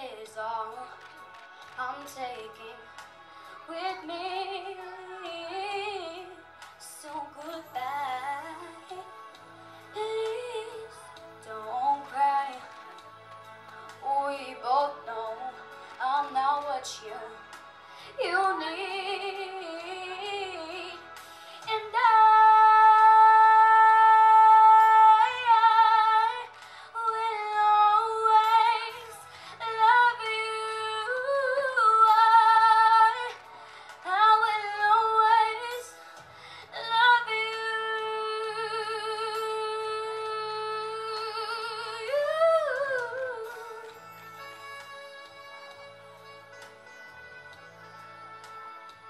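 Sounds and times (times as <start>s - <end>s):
karaoke backing track: 0.0s - 49.0s
girl singing into a microphone: 3.7s - 9.1s, 9.9s - 12.7s, 14.0s - 17.4s, 18.1s - 21.0s, 21.6s - 44.0s.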